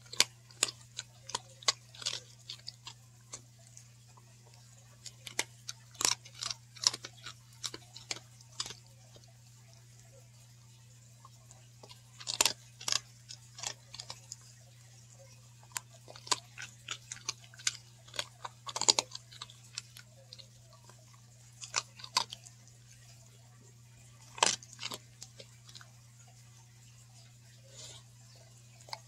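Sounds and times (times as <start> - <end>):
dog crunching a cookie: 0.0 - 29.0.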